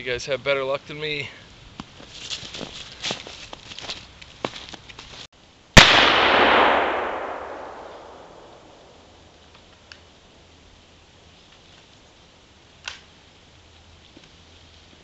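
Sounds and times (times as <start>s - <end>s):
gunshot echoing through woods: 5.8s - 9.3s.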